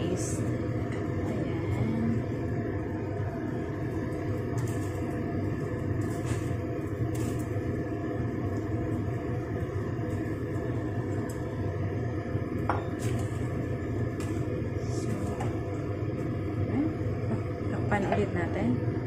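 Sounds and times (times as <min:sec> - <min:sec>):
water boiling and bubbling: 0:00.0 - 0:19.0.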